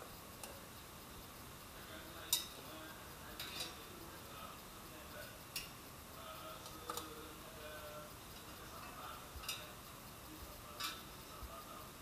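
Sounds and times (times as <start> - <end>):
metal tongs clinking on basket: 10.8 - 11.0.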